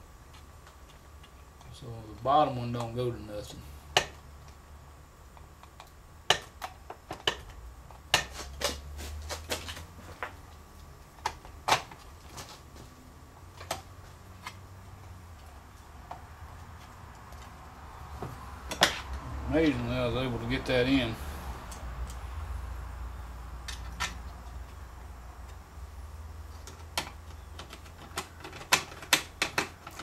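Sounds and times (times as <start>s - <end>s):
steady low hum: 0.0s - 30.0s
plastic and metal parts clicking: 26.6s - 30.0s.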